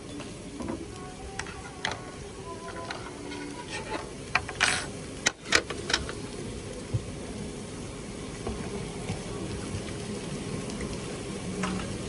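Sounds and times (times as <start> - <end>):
steady background hum: 0.0 - 12.0
tableware clicks and knocks: 2.7 - 6.2.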